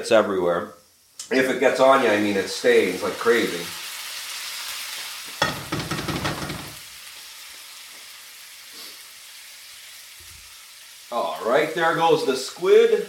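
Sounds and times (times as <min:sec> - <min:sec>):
food sizzling in oil: 0:00.8 - 0:13.0
clattering and scraping in pan: 0:05.4 - 0:06.8.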